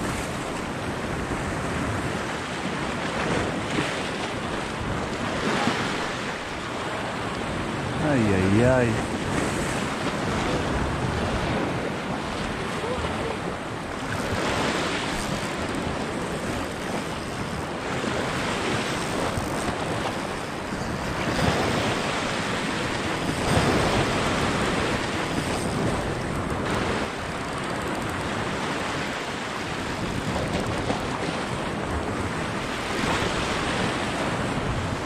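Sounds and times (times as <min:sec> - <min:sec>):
waves washing over rocks: 0:00.0 - 0:27.4
wind on microphone: 0:00.0 - 0:35.0.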